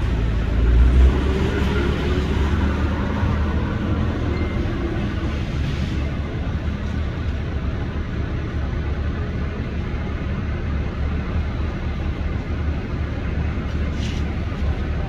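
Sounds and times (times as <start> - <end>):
diesel engine rumble: 0.0 - 15.0.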